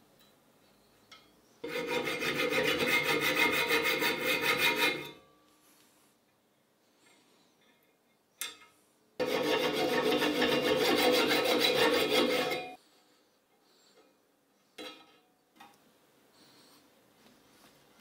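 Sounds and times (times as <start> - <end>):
saw rasping through metal: 1.6 - 5.2, 9.2 - 12.8.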